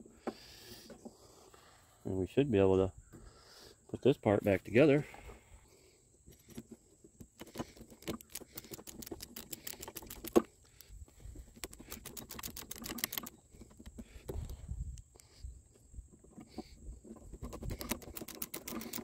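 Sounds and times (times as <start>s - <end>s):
screwdriver clicking: 11.6s - 13.3s, 17.6s - 19.0s.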